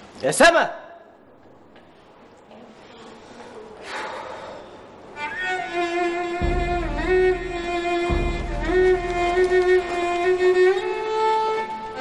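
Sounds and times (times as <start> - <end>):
violin melody: 5.2 - 12.0
low sustained bass: 6.4 - 9.9.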